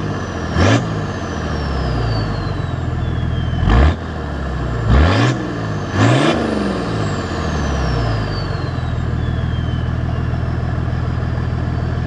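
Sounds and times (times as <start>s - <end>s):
diesel engine idling: 0.0s - 12.0s
turbo whistle: 2.0s - 3.9s, 7.9s - 10.4s.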